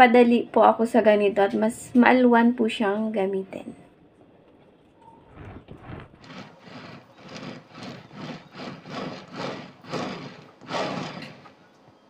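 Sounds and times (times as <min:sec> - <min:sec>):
plastic scraper scraping frosting: 0:05.4 - 0:11.6.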